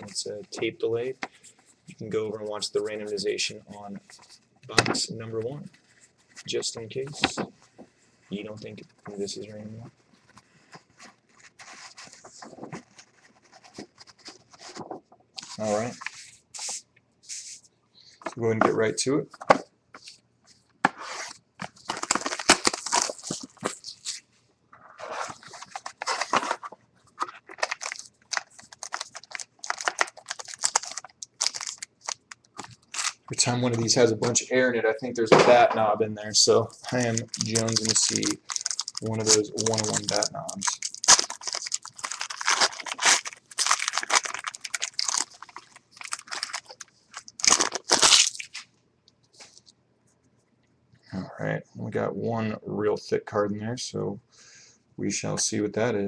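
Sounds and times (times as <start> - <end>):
rustling and crinkling packaging: 8.7 - 16.8, 21.6 - 24.2, 24.9 - 34.0, 36.3 - 48.7
cardboard tearing: 37.0 - 48.6.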